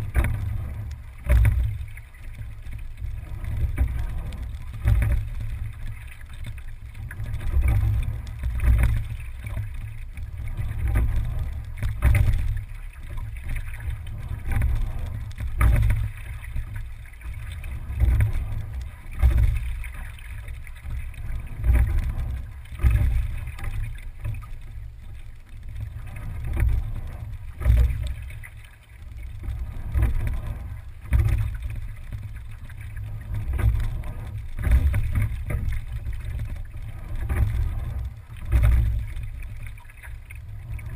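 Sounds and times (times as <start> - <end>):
rowing boat hull through water: 0.0 - 40.9.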